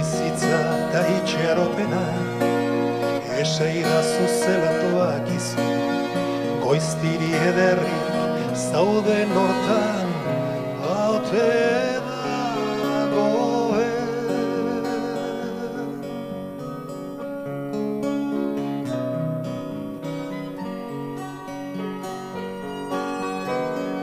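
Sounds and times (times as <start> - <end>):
person singing a sliding melody: 0.0 - 5.9, 6.5 - 16.2
accordion: 0.0 - 24.0
keyboard: 0.0 - 24.0
strummed acoustic guitars: 0.0 - 24.0.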